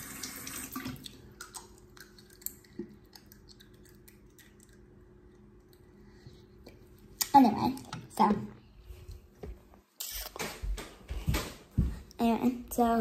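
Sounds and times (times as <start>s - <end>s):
sink tap running: 0.0s - 1.0s.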